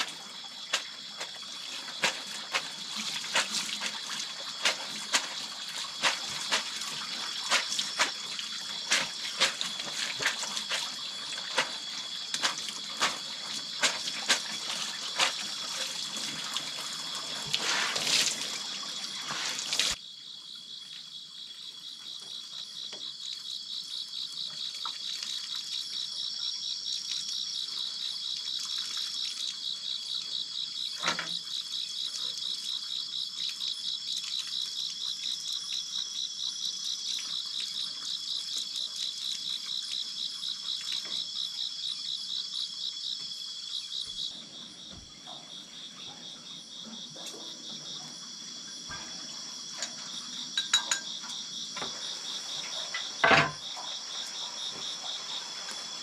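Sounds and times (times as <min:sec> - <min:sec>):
hose water splashing on feet: 0:00.0 - 0:20.0
continuous insect hum: 0:00.0 - 0:56.0
insects trilling: 0:00.0 - 0:56.0.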